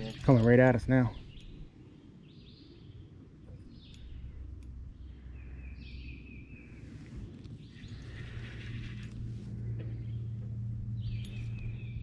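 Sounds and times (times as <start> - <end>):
low steady rumble: 0.0 - 12.0
songbirds chirping: 0.0 - 12.0
bird trill: 11.0 - 12.0.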